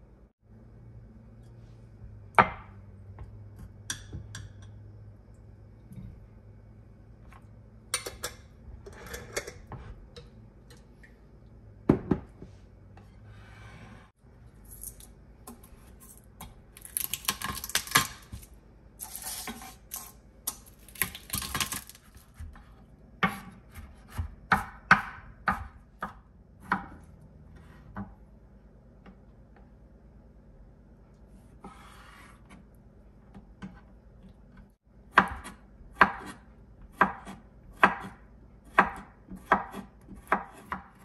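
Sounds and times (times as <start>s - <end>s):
knife chopping on cutting board: 22.2s - 27.0s, 35.1s - 41.0s.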